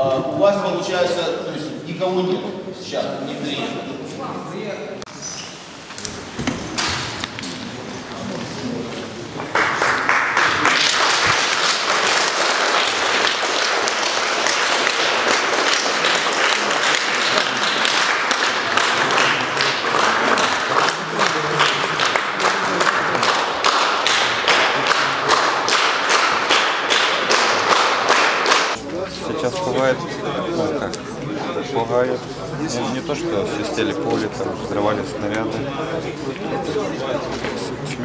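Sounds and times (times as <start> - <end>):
crowd applauding: 9.2 - 28.8.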